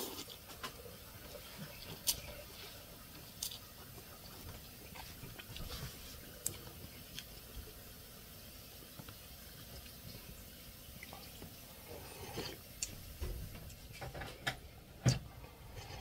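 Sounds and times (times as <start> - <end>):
person slurping noodles: 0.0 - 0.4, 11.9 - 12.6.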